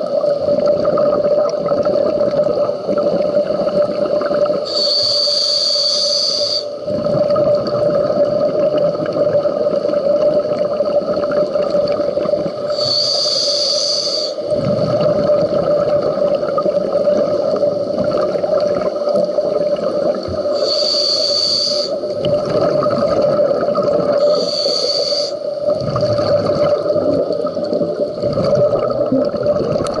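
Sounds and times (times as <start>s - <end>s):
regulator hissing on inhale: 4.5s - 6.9s, 12.6s - 14.5s, 20.2s - 22.2s, 24.1s - 25.7s
bubbling exhales: 6.5s - 30.0s.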